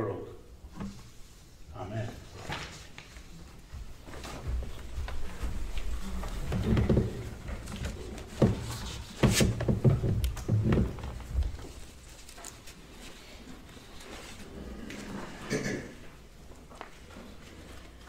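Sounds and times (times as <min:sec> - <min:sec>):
knocks and rustles near microphone: 0:03.7 - 0:12.6.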